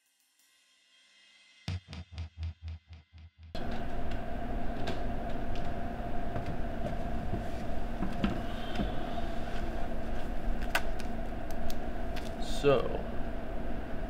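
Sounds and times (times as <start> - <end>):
faint continuous hum: 3.6 - 14.0
low rumble and hiss: 3.6 - 14.0.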